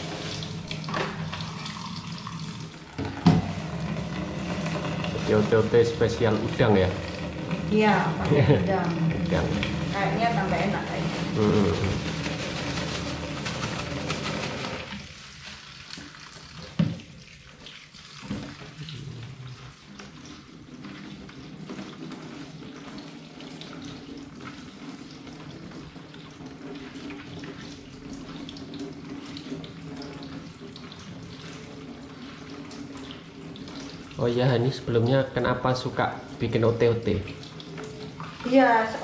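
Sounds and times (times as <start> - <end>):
tap running into metal sink: 0.0 - 10.8, 15.9 - 17.2, 18.2 - 18.8.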